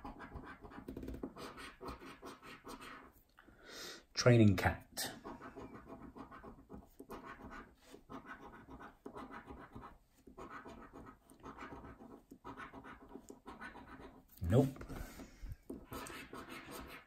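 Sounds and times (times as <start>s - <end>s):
coin scratching scratchcard: 0.0s - 3.1s, 5.2s - 14.2s, 15.8s - 17.0s.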